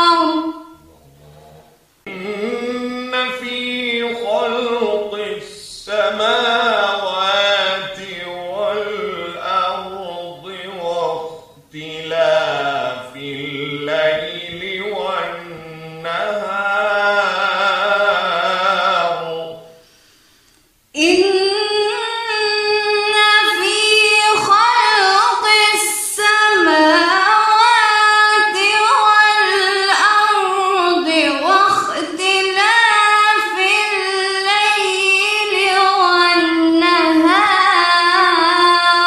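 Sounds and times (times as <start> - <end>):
woman reciting melodically: 0.0 - 0.9, 1.9 - 19.8, 21.0 - 39.0.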